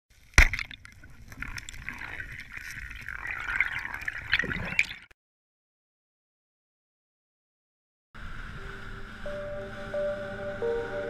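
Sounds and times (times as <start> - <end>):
watery bubbling and gurgling: 0.4 - 5.1.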